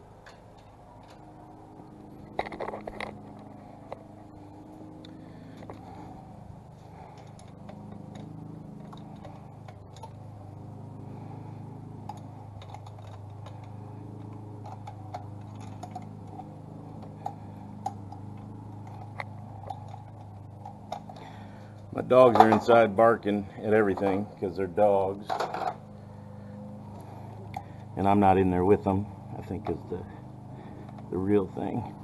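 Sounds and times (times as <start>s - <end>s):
low steady hum: 0.0s - 32.0s
hand tools clicking on metal parts: 0.2s - 1.4s, 6.9s - 10.4s, 12.0s - 22.8s.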